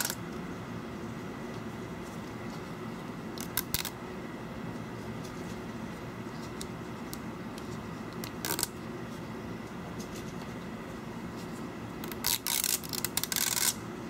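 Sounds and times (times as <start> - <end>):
adhesive strip peeling: 8.2 - 8.7, 12.0 - 13.8.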